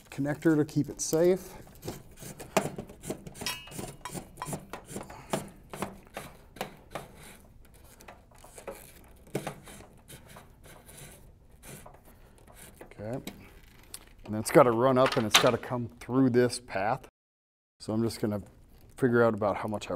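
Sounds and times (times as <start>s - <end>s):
cable clicking and rubbing: 0.0s - 14.4s.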